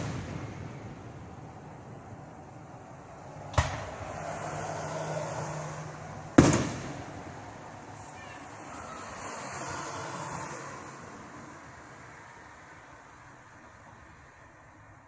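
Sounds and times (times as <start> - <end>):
fireworks exploding: 0.0 - 2.2, 3.5 - 4.7, 6.4 - 8.4.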